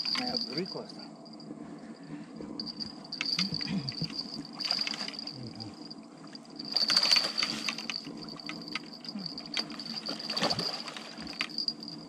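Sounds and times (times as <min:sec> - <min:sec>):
high insect whine: 0:00.0 - 0:12.0
water splashing: 0:09.7 - 0:11.7.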